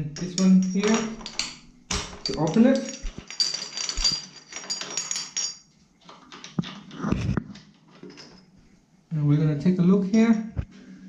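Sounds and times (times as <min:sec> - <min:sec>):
metal scraping and clinking: 0:00.2 - 0:07.0.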